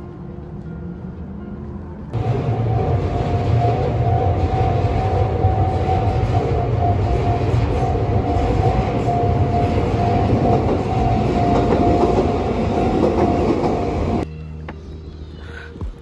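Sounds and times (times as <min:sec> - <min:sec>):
electric train rumbling: 0:00.0 - 0:14.3
level-crossing alarm ringing: 0:02.2 - 0:14.2.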